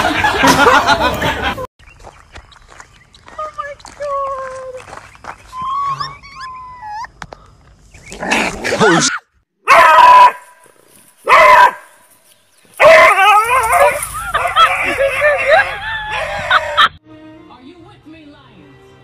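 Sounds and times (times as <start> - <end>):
puppy barking and yelping: 5.6 - 7.1.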